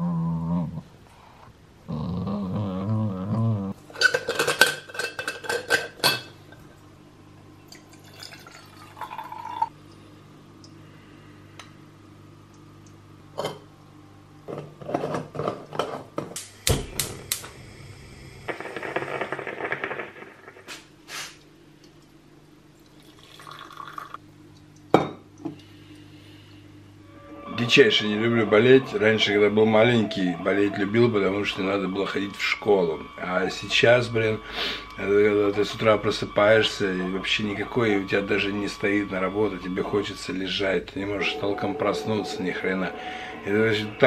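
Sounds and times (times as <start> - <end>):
coffee pouring into mug: 7.6 - 9.8, 22.8 - 24.2.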